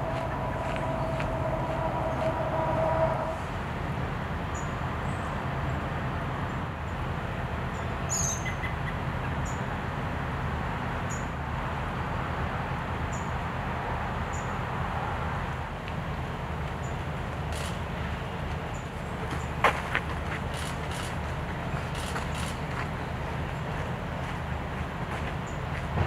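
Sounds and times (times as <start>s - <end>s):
low rumble: 0.0s - 4.5s.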